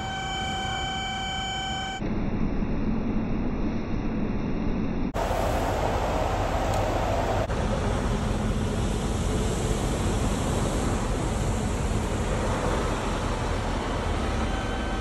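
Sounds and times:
heavy truck running: 5.2 - 15.0
street traffic: 5.2 - 15.0.

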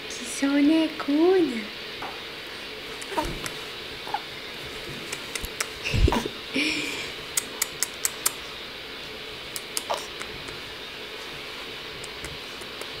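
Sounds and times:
baby cooing: 3.0 - 4.3, 9.8 - 10.6.

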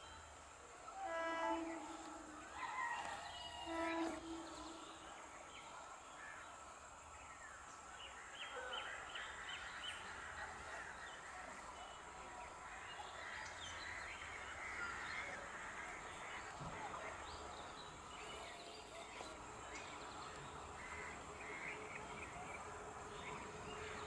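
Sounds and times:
train horn blast: 0.9 - 5.7.

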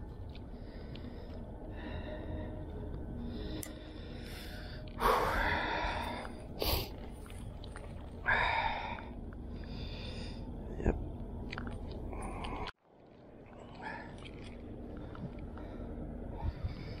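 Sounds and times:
steady low rumble: 0.0 - 17.0
person breathing loudly: 0.4 - 7.3.

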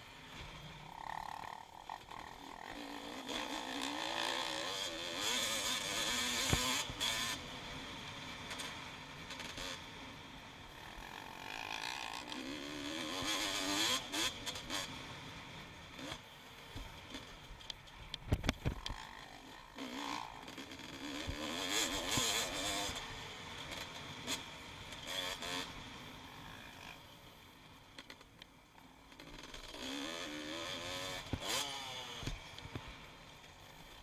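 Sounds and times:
motocross engine revving: 0.9 - 9.8, 10.7 - 15.1, 18.7 - 24.4, 29.2 - 32.5.

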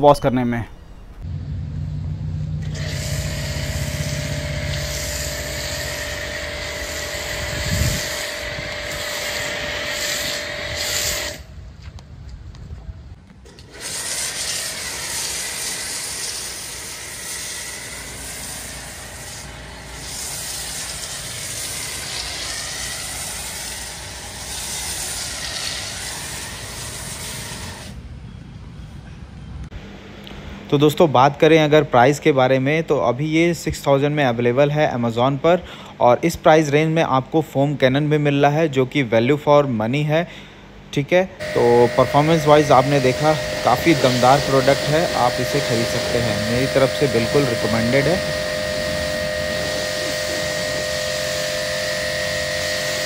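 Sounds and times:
pressure washer motor humming: 1.2 - 11.5, 13.4 - 28.0, 41.4 - 53.0
foam spray hissing: 2.6 - 11.5, 13.5 - 28.0, 41.4 - 53.0.

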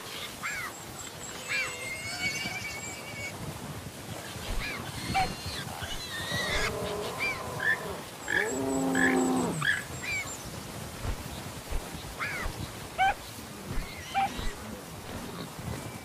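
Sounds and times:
lower drawn-out animal call: 4.5 - 9.8.

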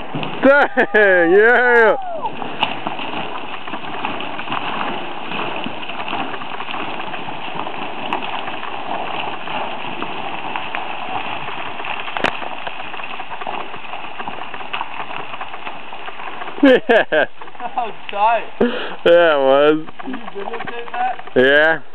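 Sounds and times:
rocks clattering down cliff: 0.0 - 21.9
sharp crack of rock impact: 1.5 - 16.2.

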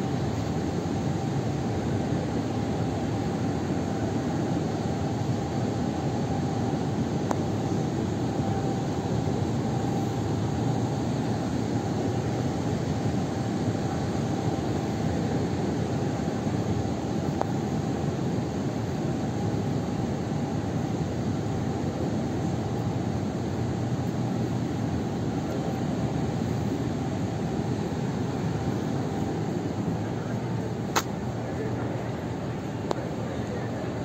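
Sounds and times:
air conditioning hum: 0.0 - 34.0
small click: 31.0 - 31.2.

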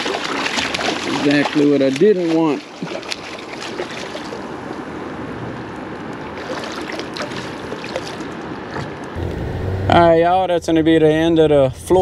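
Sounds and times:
faint small splashes: 0.0 - 4.4, 6.4 - 9.1
waves lapping against a hull: 0.0 - 9.2.

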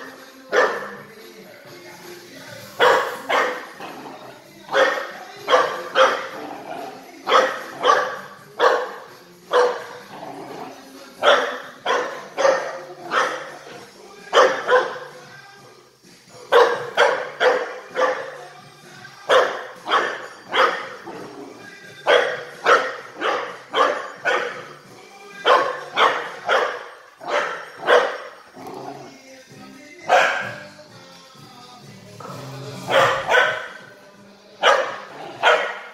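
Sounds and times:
faint music: 0.0 - 35.9
small dog barking: 7.3 - 8.9, 30.1 - 30.5, 32.9 - 33.8, 34.6 - 35.9.

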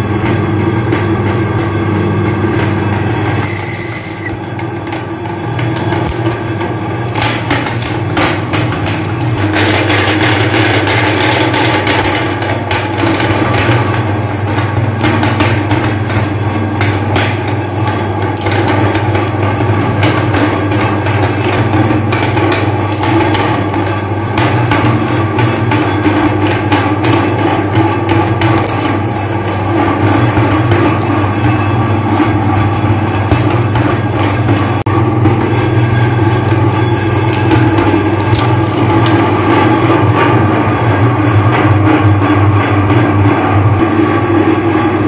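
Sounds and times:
meat grinder motor humming: 0.0 - 45.0
hard candy cracking: 36.4 - 39.8.

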